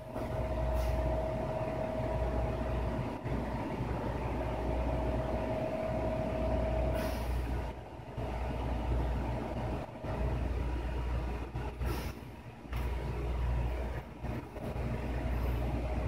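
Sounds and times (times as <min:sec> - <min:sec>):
faint hum: 0:00.0 - 0:16.0
low mechanical rumble: 0:00.0 - 0:16.0.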